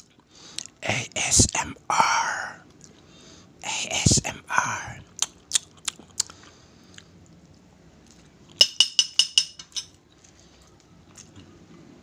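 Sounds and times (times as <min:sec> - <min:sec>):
metal fork clinking on glass plate: 0:08.6 - 0:10.0.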